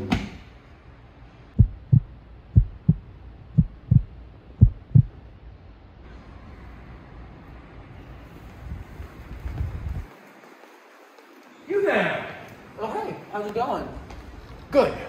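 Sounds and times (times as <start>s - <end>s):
heartbeat double thumps: 1.6s - 5.2s.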